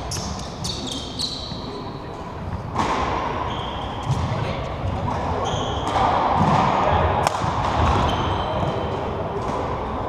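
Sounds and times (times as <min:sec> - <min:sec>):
shoes squeaking on court: 0:00.0 - 0:02.0, 0:03.4 - 0:06.0, 0:07.8 - 0:09.0
hall background noise: 0:00.0 - 0:10.0
racket striking shuttlecock: 0:05.0 - 0:08.8.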